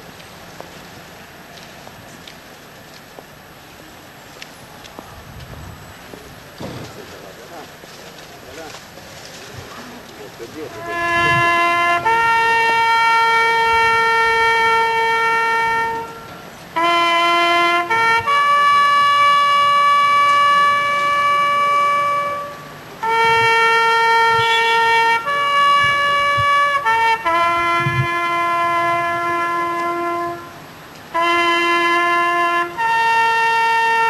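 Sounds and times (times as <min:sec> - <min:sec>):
solo trumpet military call: 0:08.3 - 0:34.0.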